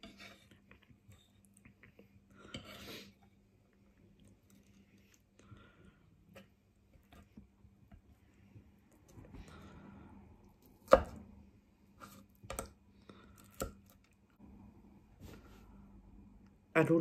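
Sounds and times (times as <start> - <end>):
faint chewing: 0.4 - 7.2.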